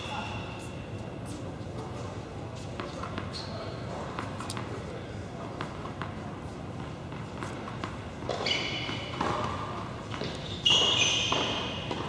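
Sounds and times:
high shoe squeaks: 0.0 - 1.5, 2.9 - 3.8, 8.3 - 9.6, 10.2 - 12.0
tennis ball bouncing on court: 5.5 - 6.2, 6.8 - 12.0.

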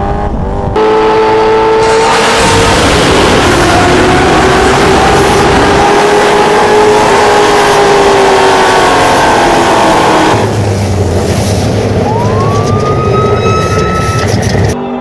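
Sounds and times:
car engine revving hard: 0.0 - 11.8
deep engine rumble: 0.0 - 14.8
rising whine: 0.0 - 15.0.

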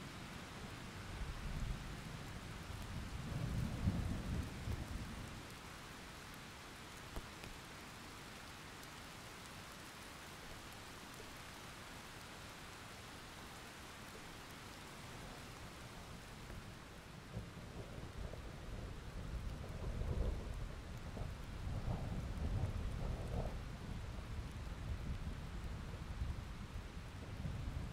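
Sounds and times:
rain falling on plants: 0.0 - 27.9.

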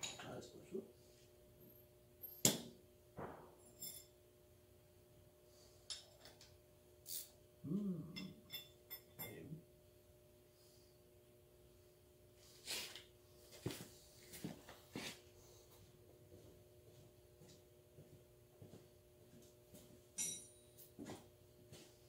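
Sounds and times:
faint steady hum: 0.0 - 22.0
man grunting: 7.6 - 8.2
metallic tool clicks and clinks: 20.2 - 20.6.

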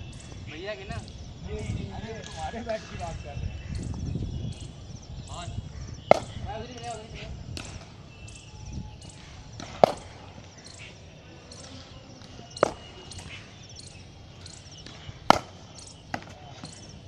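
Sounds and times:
cricket bat hitting ball: 6.1 - 8.0, 9.6 - 10.5, 11.6 - 13.4, 14.8 - 16.9.

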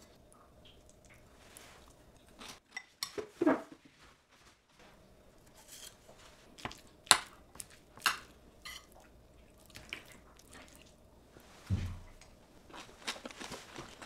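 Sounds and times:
wet squishing: 8.9 - 11.0
low thump: 11.7 - 12.1.

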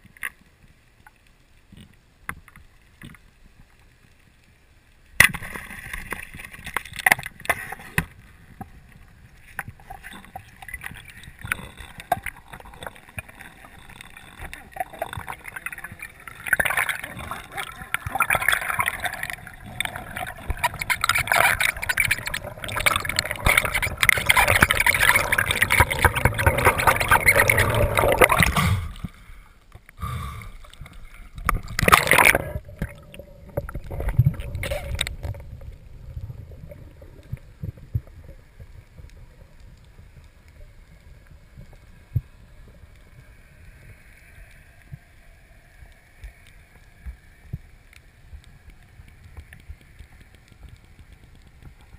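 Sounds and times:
water churning and bubbling: 5.1 - 51.9.

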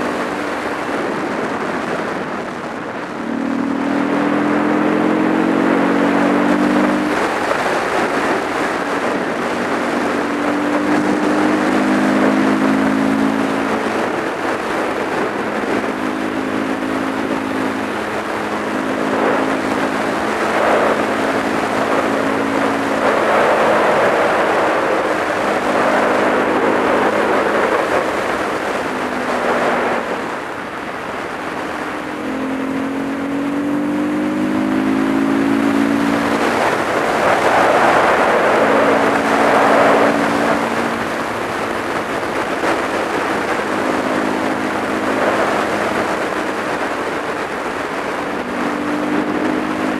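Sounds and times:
motorcycle engine running: 0.0 - 49.9
wind rush on microphone: 0.0 - 49.9.

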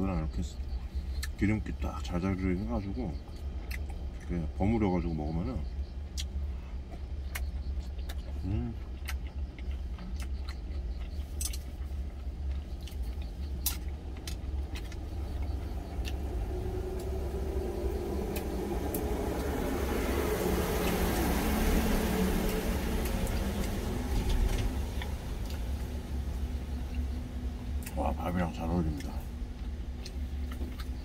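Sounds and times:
truck engine idling: 0.0 - 31.0
broad rushing noise: 14.7 - 29.3.

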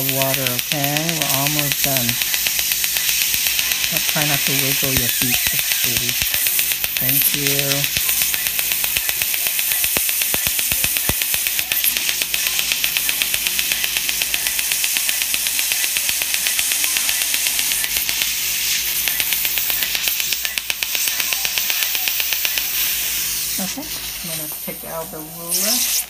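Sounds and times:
dental laser snapping pops: 0.0 - 24.7, 25.5 - 26.0
steady hiss: 0.0 - 26.0.

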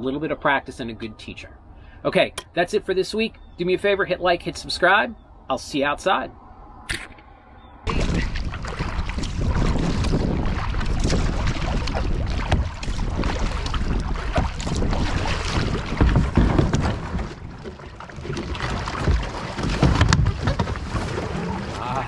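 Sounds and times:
wind buffeting microphone: 6.3 - 22.0
water sloshing from paddle strokes: 7.9 - 22.0.

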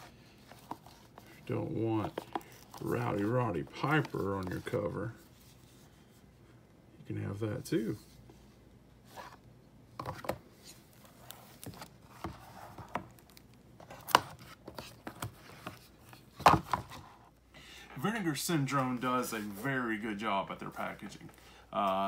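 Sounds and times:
rubbing and sliding of cardboard: 10.6 - 13.2.

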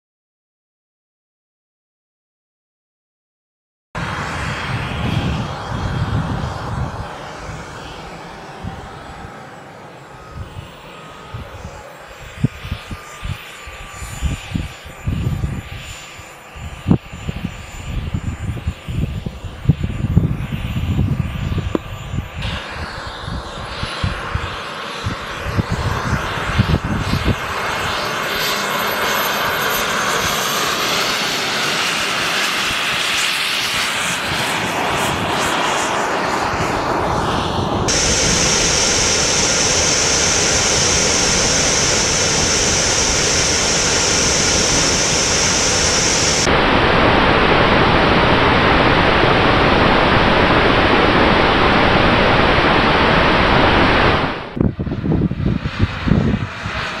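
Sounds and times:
rushing air: 4.0 - 9.4, 16.6 - 28.6, 31.7 - 57.0
high whine: 4.0 - 57.0
small jet engine running: 4.0 - 57.0.

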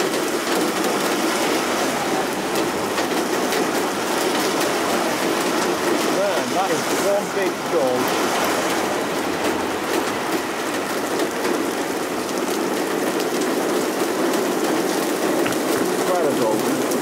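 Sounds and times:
heavy rain hiss: 0.0 - 17.0
raindrops tapping close by: 0.0 - 17.0.

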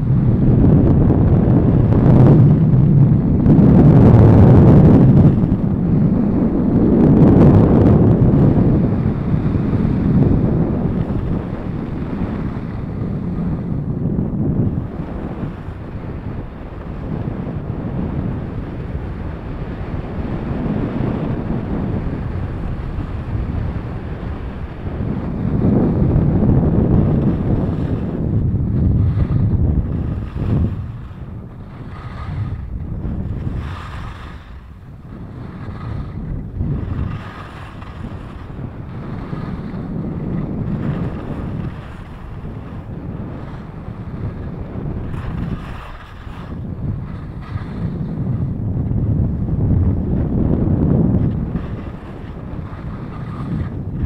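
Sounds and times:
wind buffeting microphone: 0.0 - 54.0
skis scraping over snow: 29.1 - 48.3, 51.3 - 54.0
skis sliding over snow: 36.9 - 39.8, 51.6 - 53.8.

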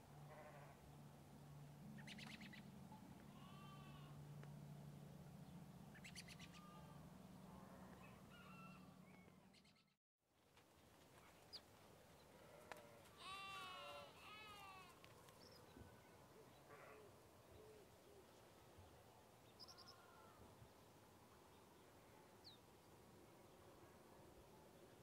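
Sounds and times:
livestock bleating: 0.3 - 0.8, 3.2 - 4.2, 6.5 - 8.9, 12.4 - 15.0, 19.8 - 20.4.

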